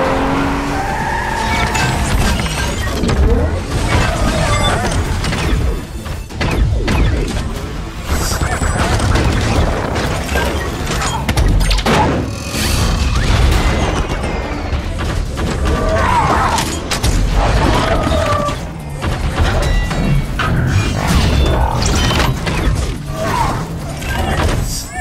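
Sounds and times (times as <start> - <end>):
music: 1.8 - 25.0.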